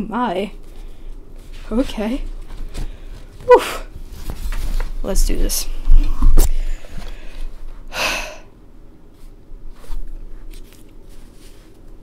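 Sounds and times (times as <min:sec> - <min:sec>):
faint handling clicks and rustles: 0:09.1 - 0:12.0.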